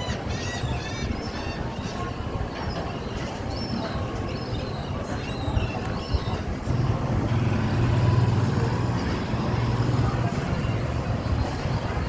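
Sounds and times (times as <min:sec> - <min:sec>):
tram car rolling past: 0:06.6 - 0:12.0.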